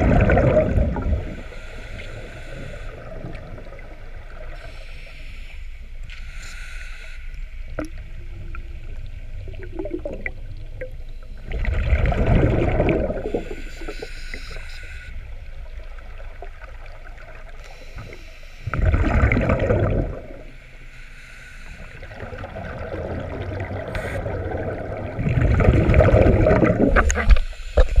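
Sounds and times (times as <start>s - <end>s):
bubbling underwater exhalations: 0.0s - 1.3s, 11.5s - 13.6s, 18.7s - 20.4s, 22.1s - 27.4s
regulator inhalation hiss: 1.2s - 3.2s, 4.5s - 7.4s, 13.2s - 15.2s, 17.6s - 18.7s, 20.6s - 22.2s.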